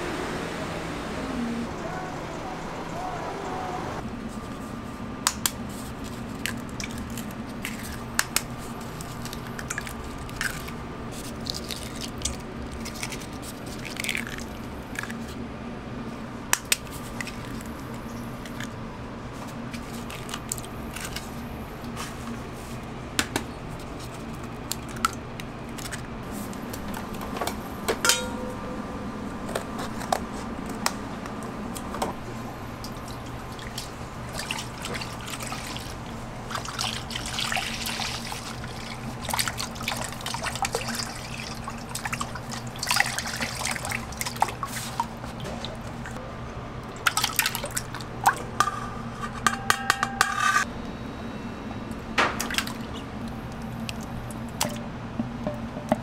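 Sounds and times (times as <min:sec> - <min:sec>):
steady background hum: 0:00.0 - 0:56.0
wet drips: 0:32.8 - 0:46.2.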